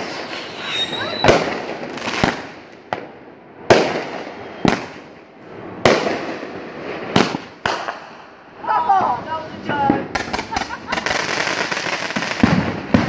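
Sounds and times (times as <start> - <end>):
firework bangs with crackle: 0.0 - 13.0.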